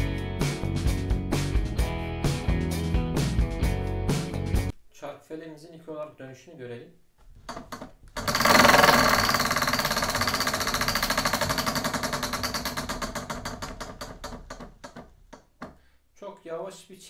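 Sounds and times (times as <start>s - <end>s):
prize wheel pointer clicking: 8.2s - 14.5s.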